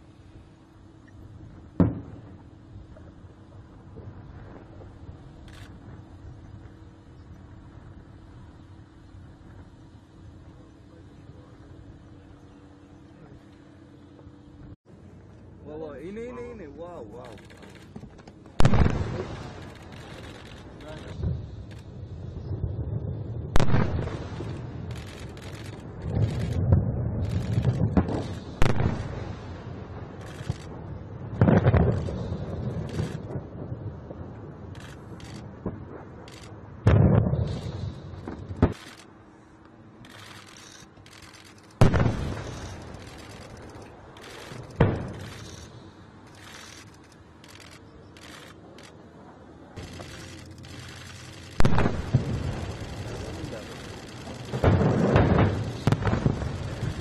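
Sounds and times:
steady hiss: 0:00.0 - 0:57.0
explosions: 0:01.7 - 0:02.4, 0:18.6 - 0:38.9, 0:41.8 - 0:45.6, 0:49.8 - 0:57.0
low rumble: 0:17.4 - 0:39.0.

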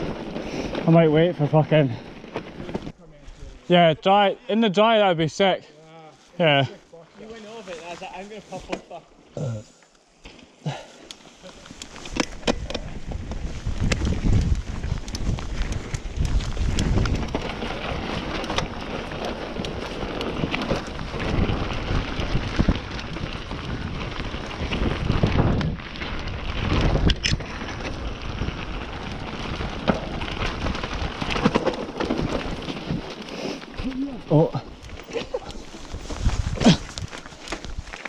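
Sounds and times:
tyres rumbling over dirt: 0:00.0 - 0:03.0, 0:10.7 - 0:38.0
bike knocks and rattles: 0:11.9 - 0:28.6, 0:29.4 - 0:33.9
wind buffeting microphone: 0:12.1 - 0:33.1, 0:34.6 - 0:38.0.

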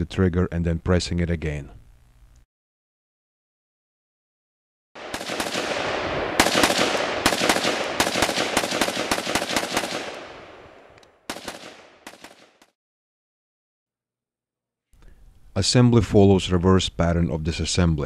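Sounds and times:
rifle firing rapid shots: 0:05.0 - 0:12.7.

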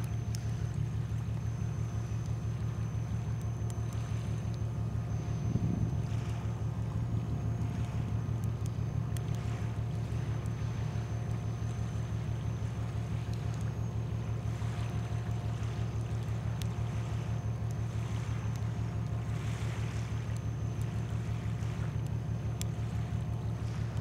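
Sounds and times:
boat diesel engine running: 0:00.0 - 0:24.0
wind noise: 0:05.4 - 0:06.0.

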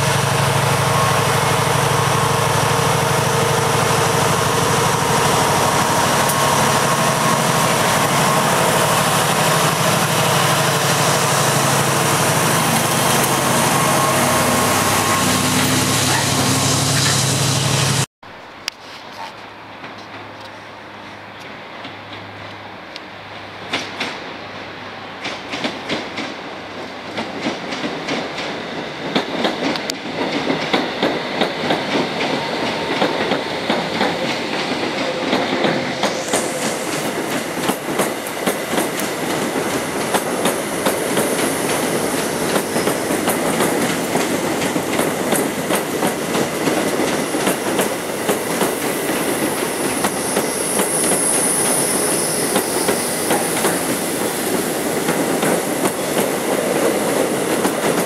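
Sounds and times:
train wheels clattering over rail joints: 0:27.1 - 0:51.3
high hiss: 0:35.8 - 0:46.4, 0:47.2 - 0:57.7.

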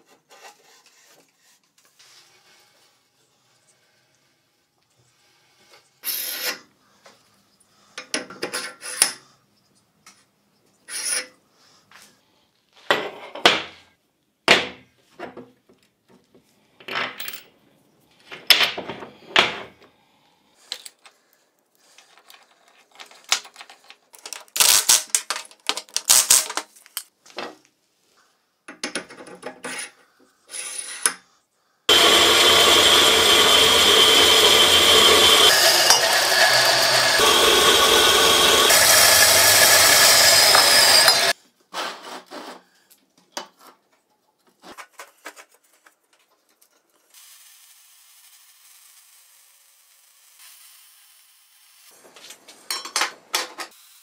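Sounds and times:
power tool whining: 0:31.9 - 0:41.4.

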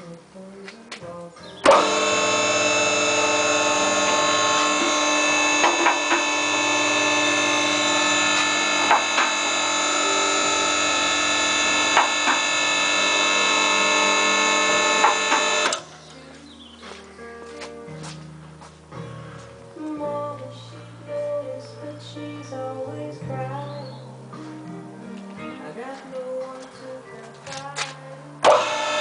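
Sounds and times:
hydraulic power unit running: 0:01.6 - 0:15.9, 0:28.4 - 0:29.0.

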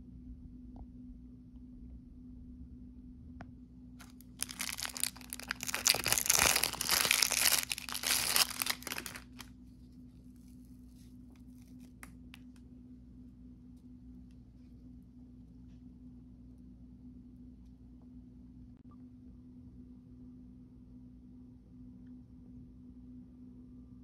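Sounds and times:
plastic wrapper crinkling and tearing: 0:04.0 - 0:09.5.

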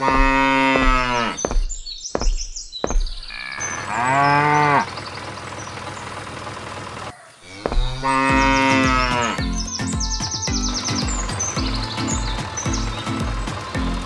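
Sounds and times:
cow mooing: 0:00.0 - 0:01.4, 0:03.3 - 0:04.9, 0:07.4 - 0:09.5.

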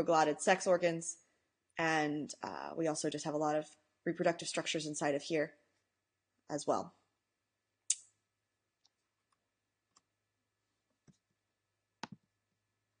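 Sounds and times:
computer mouse clicks: 0:12.0 - 0:12.2.

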